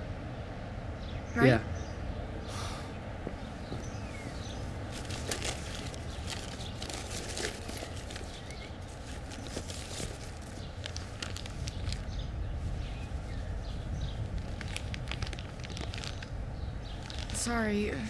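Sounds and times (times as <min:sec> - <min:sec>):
low outdoor rumble: 0:00.0 - 0:18.0
light clicks and rustles: 0:03.2 - 0:12.2.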